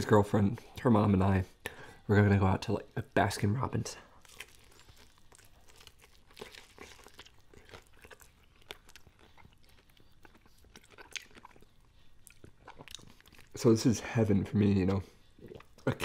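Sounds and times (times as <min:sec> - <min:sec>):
fried chicken crunching: 0:04.1 - 0:13.6.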